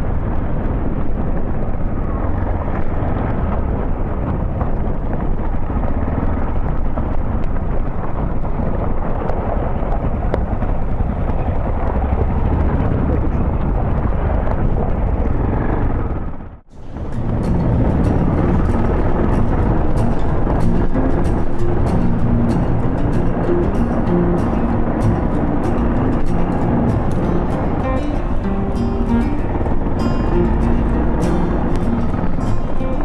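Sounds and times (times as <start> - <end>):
wind buffeting microphone: 0.0 - 33.0
motorcycle engine rumbling: 16.8 - 33.0.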